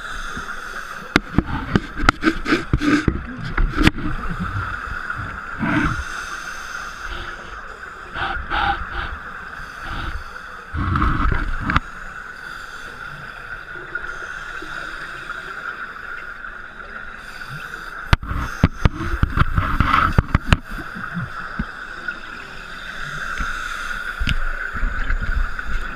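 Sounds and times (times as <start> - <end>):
underwater exhaust bubbles rumbling: 0.0 - 6.2, 7.1 - 11.9, 18.1 - 22.2, 23.3 - 25.9.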